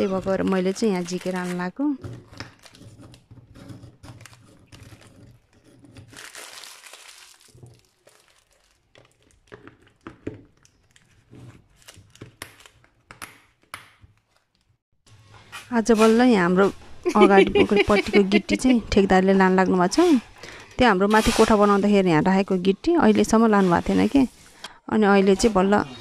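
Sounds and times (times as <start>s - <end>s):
foil wrapper crinkling: 6.1s - 12.9s.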